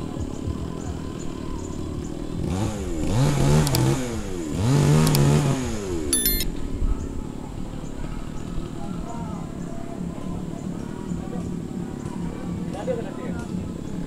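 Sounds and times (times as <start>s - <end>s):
diesel engine idling and revving: 1.6s - 6.1s
short clicks: 3.6s - 3.9s, 5.0s - 5.3s, 6.2s - 6.4s.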